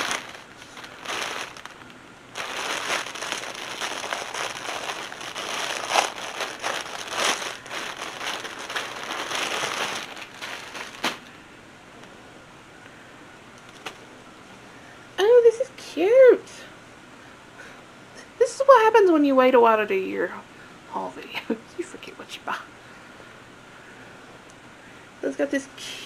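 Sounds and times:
plastic packaging crinkling: 0:00.0 - 0:11.3, 0:13.7 - 0:14.0.

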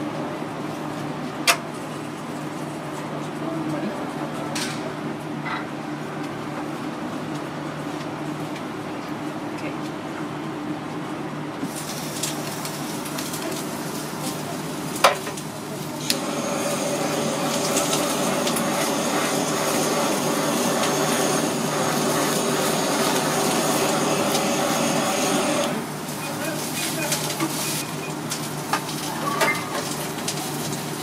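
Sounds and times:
blowtorch flame hissing: 0:11.6 - 0:27.8.

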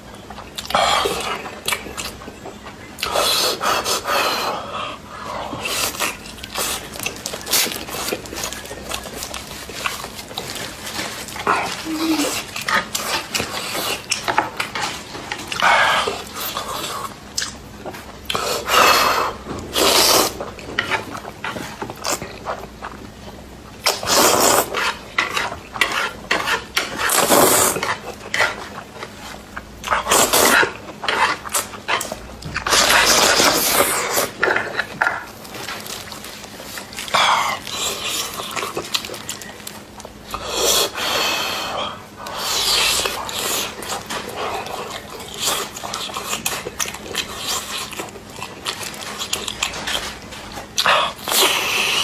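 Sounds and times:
person slurping noodles: 0:23.9 - 0:25.0, 0:25.9 - 0:28.0.

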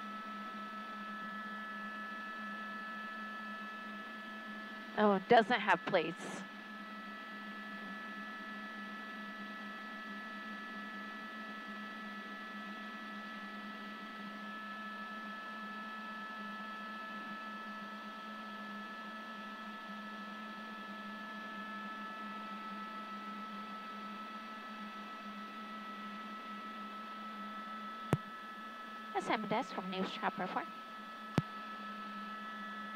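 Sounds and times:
helicopter cabin drone: 0:00.0 - 0:32.9
high whine: 0:27.6 - 0:32.9.

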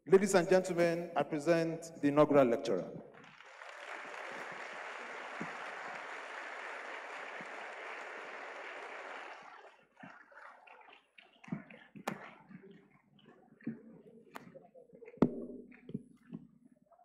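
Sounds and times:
audience applauding: 0:03.1 - 0:12.4.

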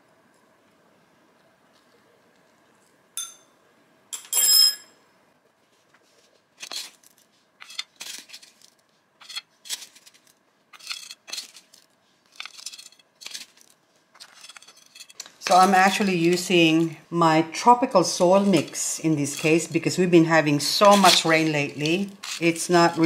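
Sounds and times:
sharp clink: 0:03.2 - 0:03.5
potting mix scraping rustles: 0:05.7 - 0:23.0.

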